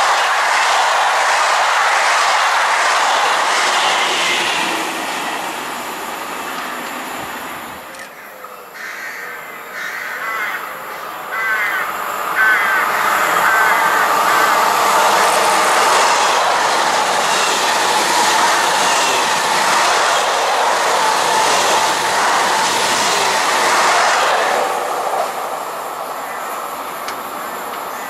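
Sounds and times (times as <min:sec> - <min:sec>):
train passing at speed: 0:00.0 - 0:08.8, 0:09.4 - 0:28.0
train approaching: 0:00.0 - 0:28.0
crows cawing: 0:08.0 - 0:15.2.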